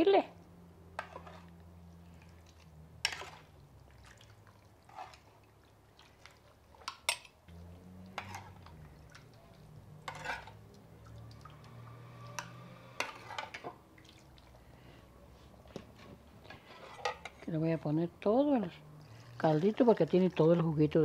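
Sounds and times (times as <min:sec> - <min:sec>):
wet squelching and dripping: 0:01.0 - 0:16.6.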